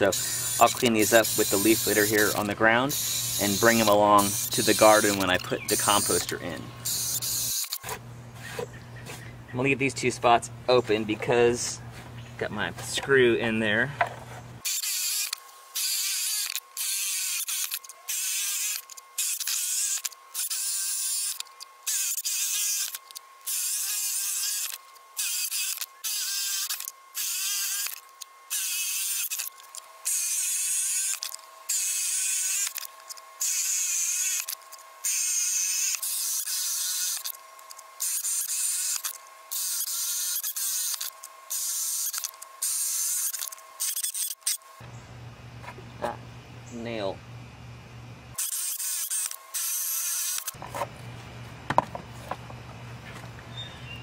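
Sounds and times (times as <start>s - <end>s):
drill boring into wood: 0.0s - 7.9s, 14.6s - 44.6s, 48.4s - 50.6s.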